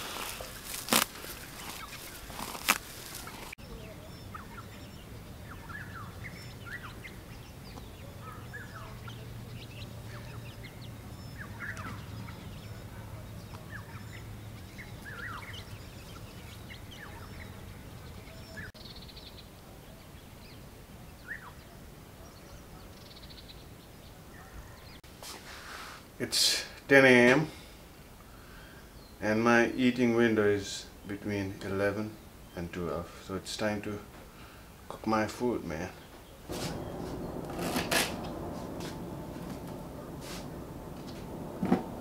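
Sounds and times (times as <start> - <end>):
bird calls and chirps: 0.4 - 25.0
faint low hum: 36.5 - 42.0
loud sharp noise: 36.5 - 42.0.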